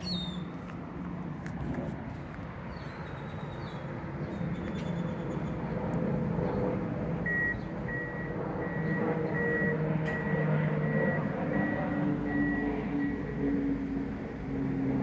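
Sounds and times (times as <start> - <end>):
engine rumble: 0.0 - 15.0
reversing alarm beeping: 7.2 - 14.0.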